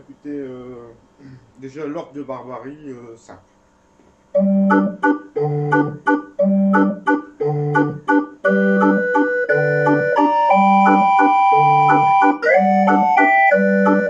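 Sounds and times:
barrel organ playing: 4.4s - 14.0s.

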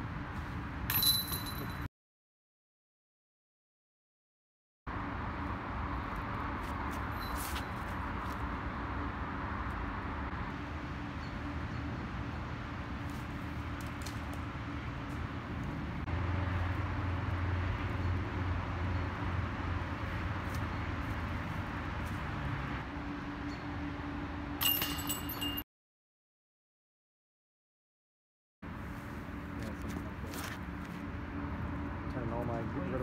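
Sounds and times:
metal chains jingling: 24.6s - 25.6s.

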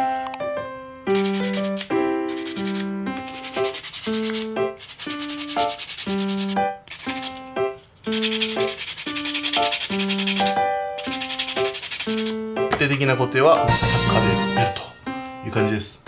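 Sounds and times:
background keyboard music: 0.0s - 16.0s
sandpaper rasping on resin: 1.1s - 7.4s, 8.1s - 12.4s.

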